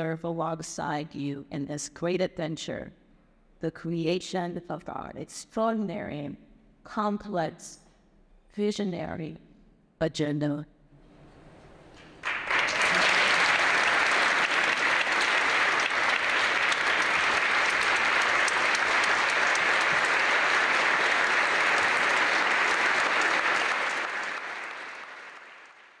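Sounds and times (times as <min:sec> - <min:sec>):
audience applauding: 0:12.0 - 0:26.0.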